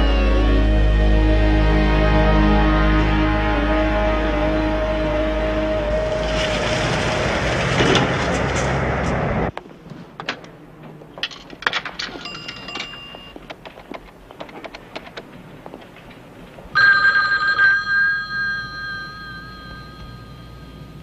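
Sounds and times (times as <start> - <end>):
payphone clicks: 11.2 - 15.3
telephone bell ringing: 12.2 - 13.4, 16.8 - 21.0.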